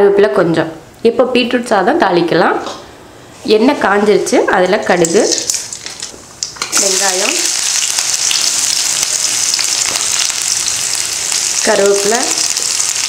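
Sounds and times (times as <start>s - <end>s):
onion sizzling in hot oil: 5.0s - 13.0s.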